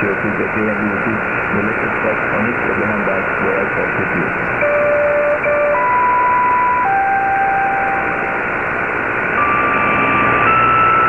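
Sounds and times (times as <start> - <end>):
radio static hiss: 0.0 - 11.0
whistle-like radio tones: 9.3 - 11.0.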